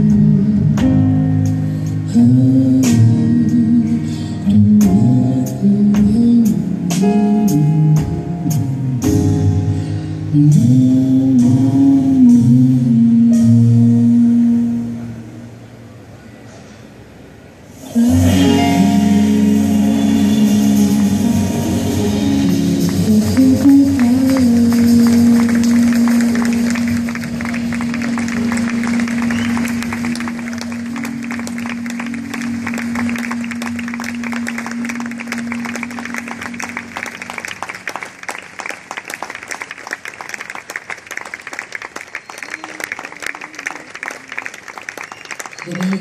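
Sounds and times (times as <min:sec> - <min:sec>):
live jazz band with vocals: 0:00.0 - 0:15.8, 0:17.7 - 0:38.1
audience applause: 0:22.4 - 0:46.0.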